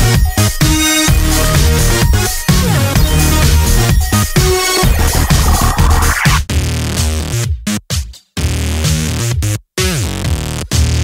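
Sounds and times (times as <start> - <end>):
electronic dance music: 0.0 - 6.5.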